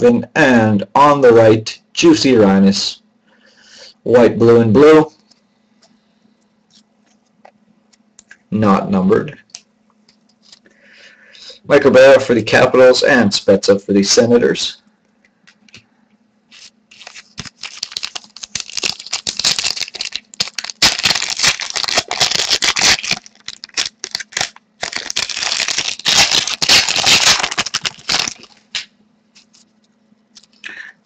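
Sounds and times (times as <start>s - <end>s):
wrapper tearing and crinkling: 16.5s - 29.6s.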